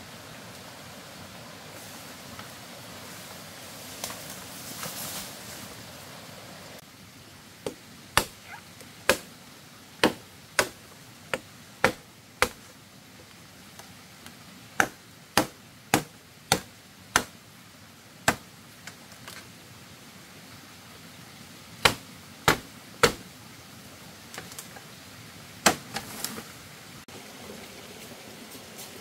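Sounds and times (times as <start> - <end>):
sharp chopping strikes: 7.6 - 8.4, 9.1 - 9.3, 10.0 - 12.6, 14.8 - 17.3, 18.3 - 18.5, 21.8 - 23.2.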